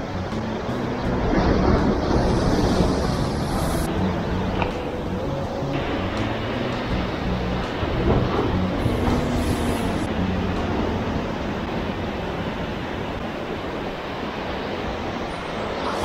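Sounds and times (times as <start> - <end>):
surf breaking over rocks: 0.8 - 5.2, 5.8 - 16.0.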